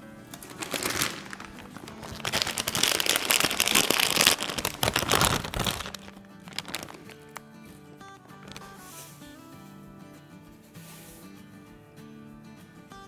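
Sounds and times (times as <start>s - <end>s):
soft background music: 0.0s - 13.0s
crinkling and rustling: 0.1s - 9.2s.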